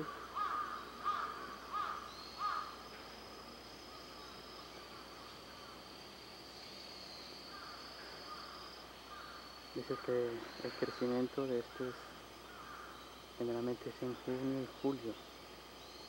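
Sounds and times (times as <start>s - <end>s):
bird calling: 0.0s - 2.8s, 6.7s - 16.0s
high-pitched insect trill: 0.0s - 16.0s.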